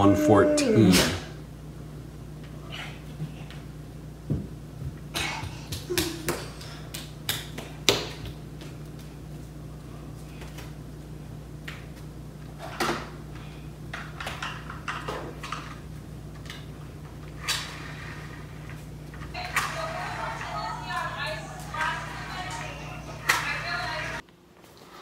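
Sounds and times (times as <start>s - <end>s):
computer fan hum: 0.0s - 24.6s.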